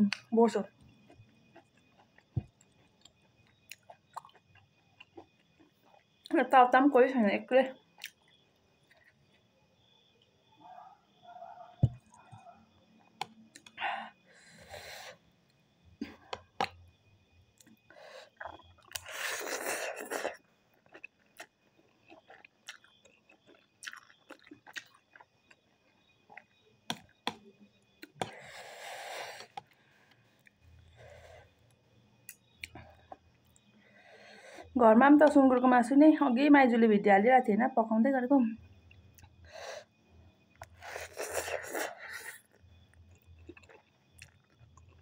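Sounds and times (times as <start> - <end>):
chewing noodles: 0.2 - 6.3, 8.0 - 9.5, 17.6 - 27.2, 40.5 - 45.0.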